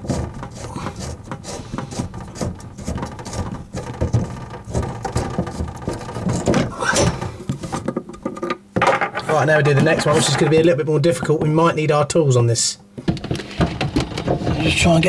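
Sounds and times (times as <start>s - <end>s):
nut scraping on pipe: 0.0s - 8.4s, 9.0s - 11.4s.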